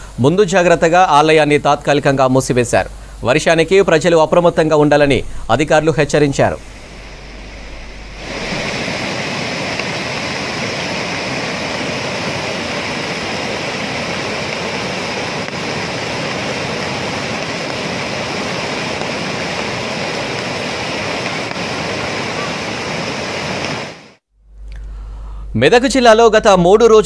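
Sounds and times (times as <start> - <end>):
floodwater rushing: 4.4 - 24.2.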